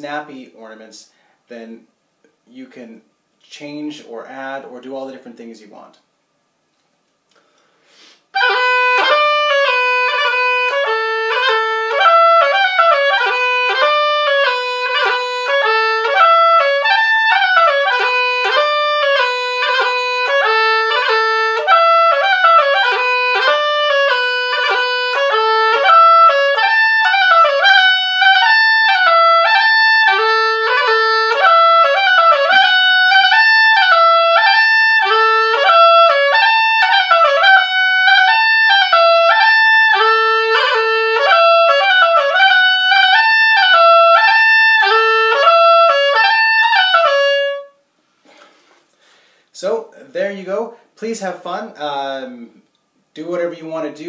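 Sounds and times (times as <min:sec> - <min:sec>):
oboe playing a folk tune: 0:08.3 - 0:49.2.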